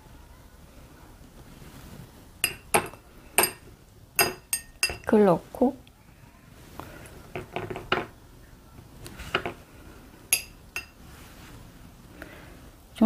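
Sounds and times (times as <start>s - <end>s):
metal spoon clinking on ceramic bowl: 2.4s - 3.6s, 4.2s - 5.1s, 10.3s - 11.0s.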